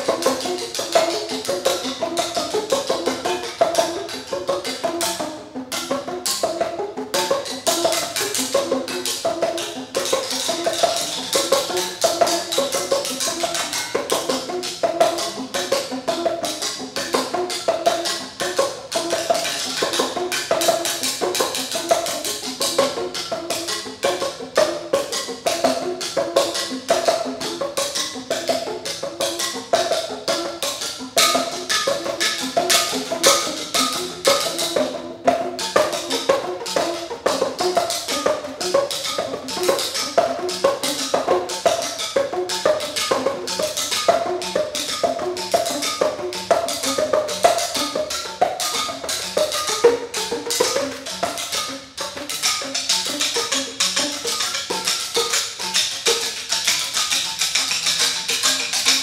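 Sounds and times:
ceramic percussion pitched notes: 0.0s - 59.0s.

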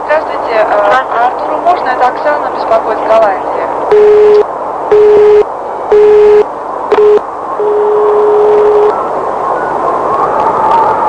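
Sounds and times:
steady line hiss: 0.0s - 11.0s
telephone busy signal beeping: 3.9s - 9.0s.

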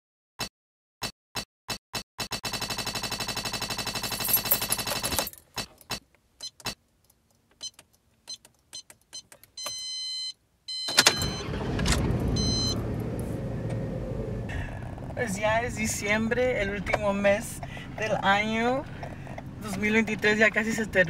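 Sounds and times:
car engine starting and running: 10.8s - 21.0s
car electronic chime: 12.3s - 12.8s.

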